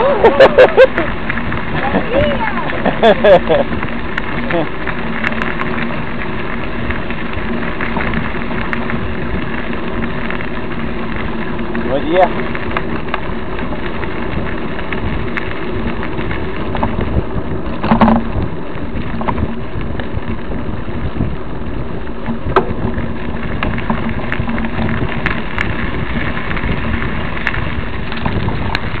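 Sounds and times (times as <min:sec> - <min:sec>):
bike rattling over bumps: 0:00.0 - 0:29.0
bike tyres rumbling on dirt: 0:00.0 - 0:29.0
wind on microphone: 0:06.7 - 0:29.0.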